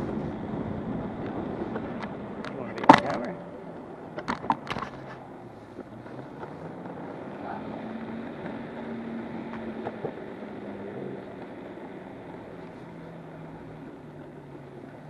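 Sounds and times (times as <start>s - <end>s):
electric motor whine: 0.0s - 15.0s
light clicks over road: 0.0s - 15.0s
skateboard wheels rolling on asphalt: 0.0s - 15.0s.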